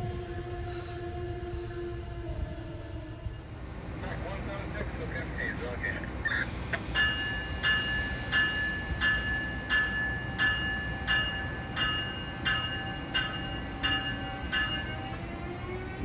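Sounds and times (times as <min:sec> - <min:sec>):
locomotive bell ringing: 0:06.3 - 0:15.4.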